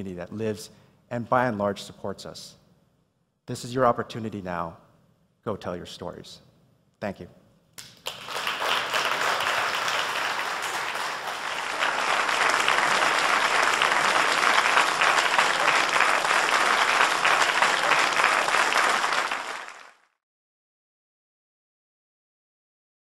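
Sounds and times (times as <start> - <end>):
audience applauding: 7.8 - 20.1.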